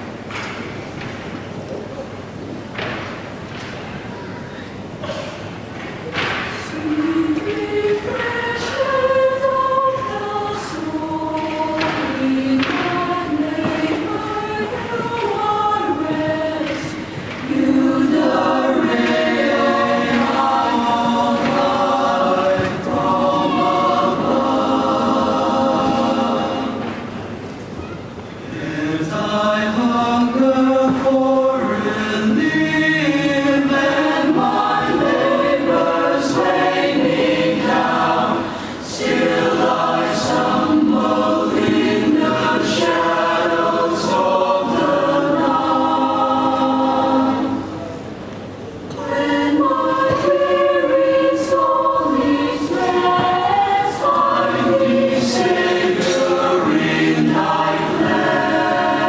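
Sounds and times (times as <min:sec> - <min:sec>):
mixed choir singing in harmony: 0:05.0 - 0:27.7, 0:28.4 - 0:59.0.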